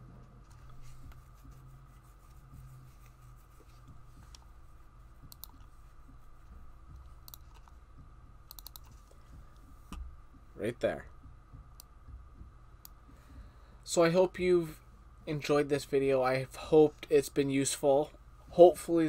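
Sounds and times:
faint steady hum: 0:00.0 - 0:19.0
computer mouse clicking: 0:04.2 - 0:04.5, 0:05.2 - 0:05.7, 0:06.4 - 0:07.8, 0:08.4 - 0:10.1.

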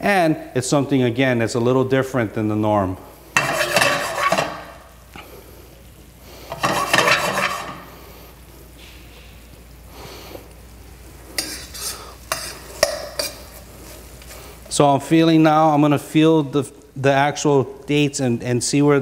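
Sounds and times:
sauce simmering sizzle: 0:03.2 - 0:14.7
metal spoon scraping a pan: 0:03.4 - 0:04.8, 0:06.5 - 0:07.9, 0:11.4 - 0:13.7.

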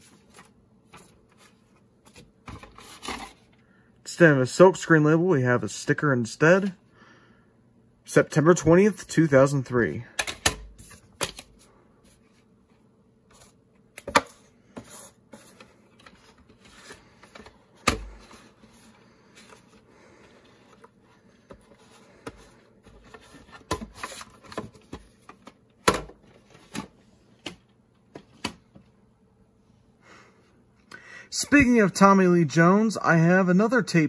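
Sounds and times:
tape cases clicking and knocking: 0:10.2 - 0:11.5.

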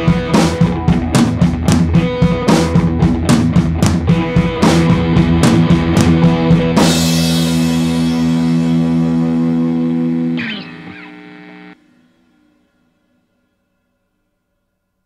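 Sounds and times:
rock music with drums and guitar: 0:00.0 - 0:11.8.

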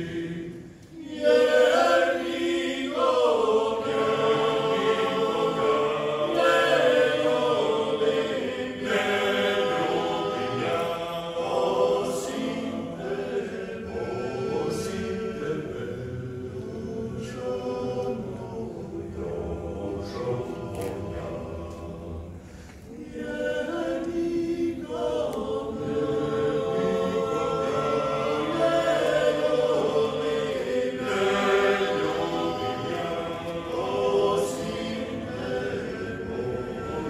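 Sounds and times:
men singing a cappella harmony: 0:00.0 - 0:22.4, 0:23.0 - 0:37.0.

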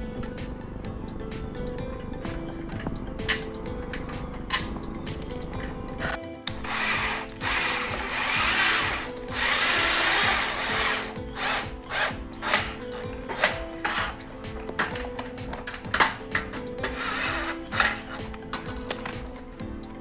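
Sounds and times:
cordless drill driving screw: 0:06.5 - 0:13.6.

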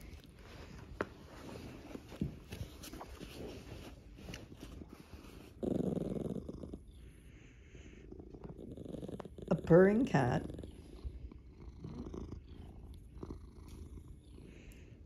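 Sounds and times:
cat purring: 0:00.0 - 0:15.0
small dog growling: 0:05.1 - 0:14.7.

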